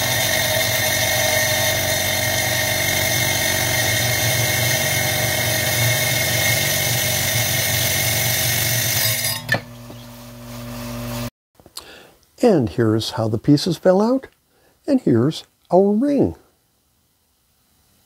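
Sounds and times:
saw blade whining in glass: 0.0 - 10.1
glass saw motor hum: 0.0 - 11.3.

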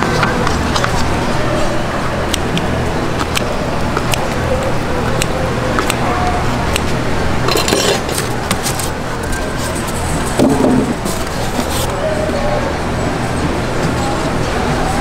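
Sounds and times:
utensils clicking and clinking: 6.7 - 12.0
paper bowl handled: 7.5 - 12.0.

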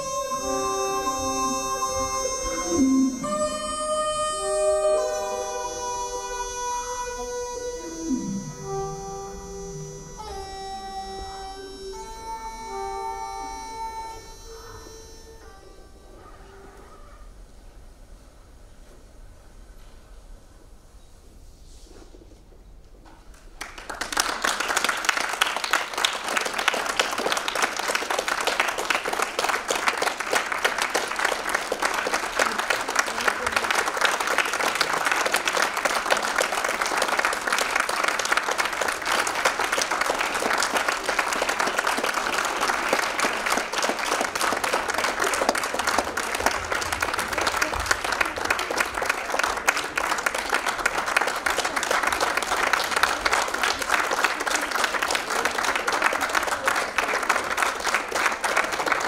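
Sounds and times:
audience applause: 23.6 - 59.0.

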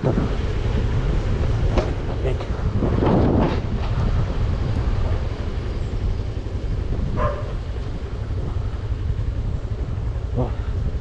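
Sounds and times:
wind rumble on microphone: 0.0 - 11.0
dog bark: 7.2 - 7.6.

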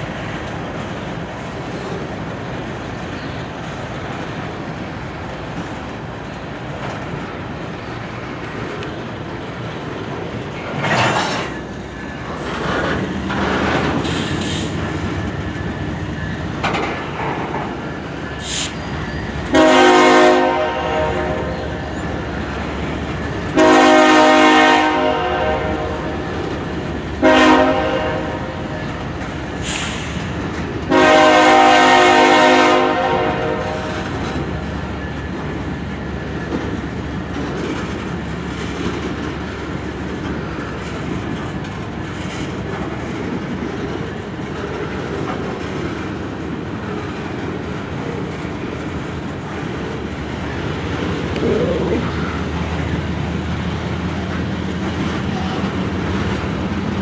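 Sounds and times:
locomotives rumbling: 0.0 - 57.0
wheels clicking over rails: 0.3 - 19.6, 33.8 - 57.0
train horn blasts: 19.5 - 21.8, 23.5 - 26.3, 27.2 - 28.7, 30.9 - 34.0.

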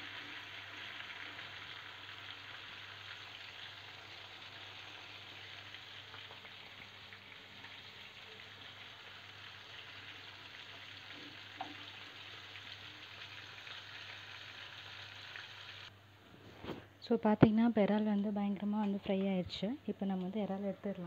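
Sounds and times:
prawns sizzling in hot oil: 0.0 - 15.9.

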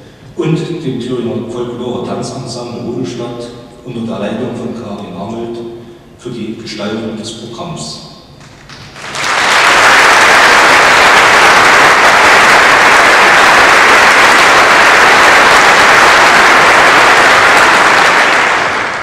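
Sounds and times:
audience applauding: 8.5 - 19.0.

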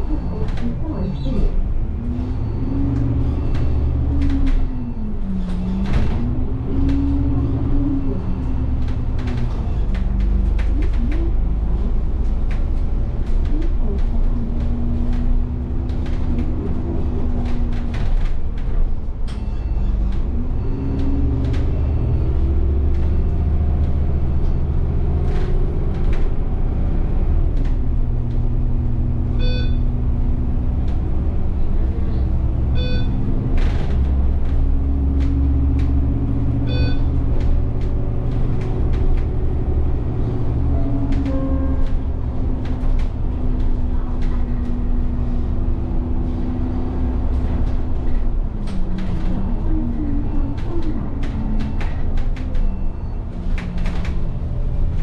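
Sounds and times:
bus engine running: 0.0 - 55.0
short electronic beeps: 29.4 - 29.9, 32.8 - 33.2, 36.6 - 37.2.

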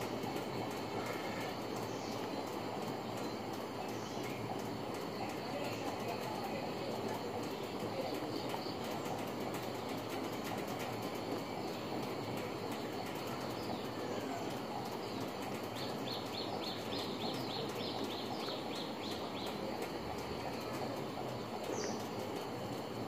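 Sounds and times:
outdoor background hiss: 0.0 - 23.0.

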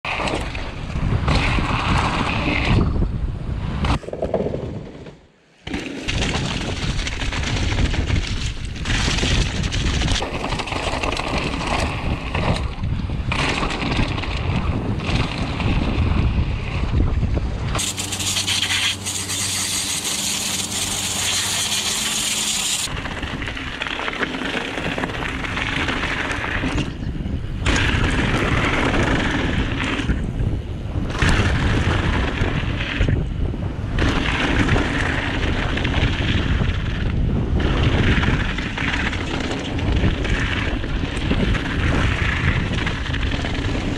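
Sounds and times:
wind buffeting microphone: 0.1 - 5.1, 6.1 - 43.9
steady low hum: 17.8 - 23.0.

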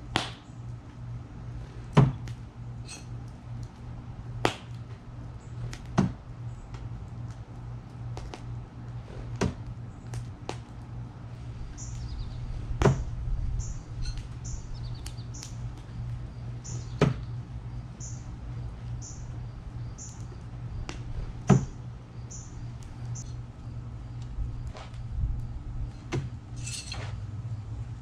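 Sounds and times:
bird chirping: 11.7 - 12.5, 16.6 - 17.0, 18.0 - 18.3, 22.2 - 23.3.

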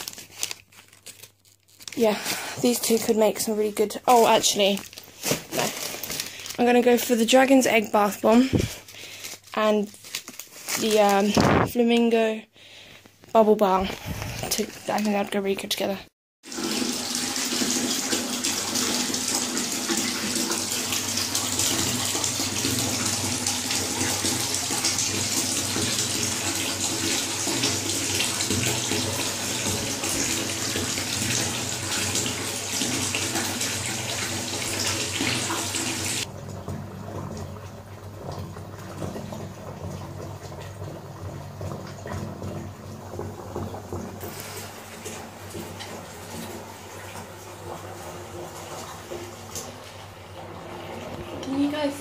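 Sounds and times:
tap running into bathtub: 16.5 - 52.0.

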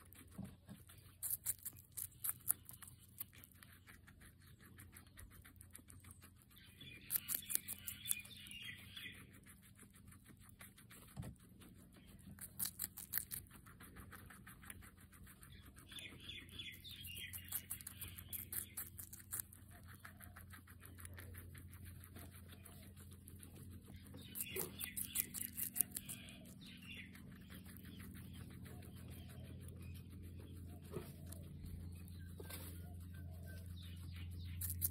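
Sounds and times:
guinea pig crunching pepper: 0.0 - 34.9.

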